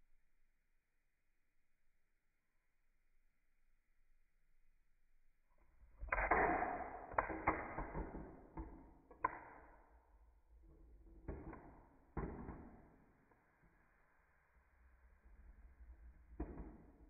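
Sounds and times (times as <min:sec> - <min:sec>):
sharp plastic clacks: 0:06.0 - 0:09.7.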